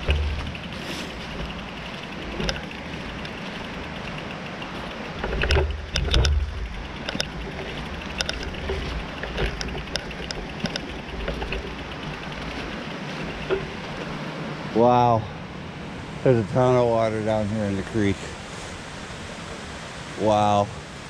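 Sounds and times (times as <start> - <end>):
bike clicking and rattling: 0.0 - 14.5
steady rushing noise: 0.0 - 21.0.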